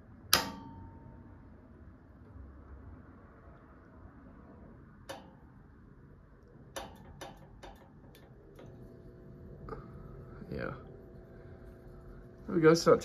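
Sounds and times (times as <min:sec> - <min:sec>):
faint lamp hum: 0:04.7 - 0:13.0.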